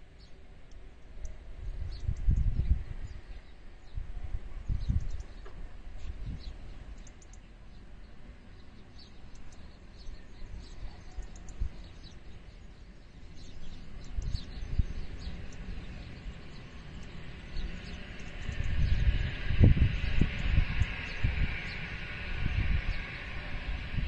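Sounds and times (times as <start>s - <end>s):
wind buffeting microphone: 1.1s - 24.0s
small birds chirping: 4.6s - 23.8s.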